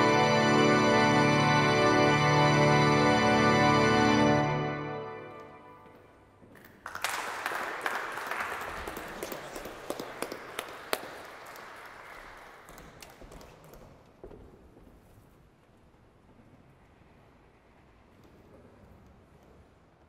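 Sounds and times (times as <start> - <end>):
audience applauding: 6.6 - 13.9.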